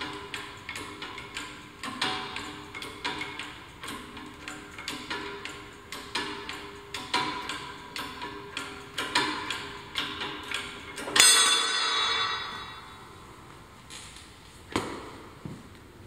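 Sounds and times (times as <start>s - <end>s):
sharp metallic clank: 11.0s - 13.2s.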